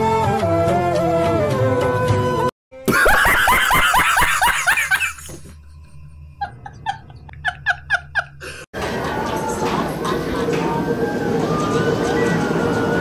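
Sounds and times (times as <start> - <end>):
person laughing: 2.8 - 5.5, 6.4 - 8.7
person giggling: 2.9 - 5.4, 6.4 - 8.7.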